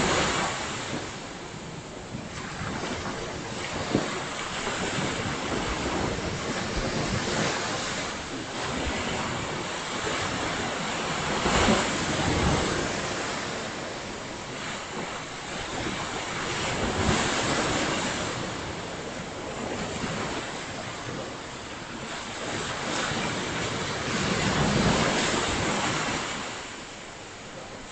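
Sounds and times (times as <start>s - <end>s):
waves breaking on beach: 0.0s - 27.9s
wind on microphone: 0.0s - 27.9s.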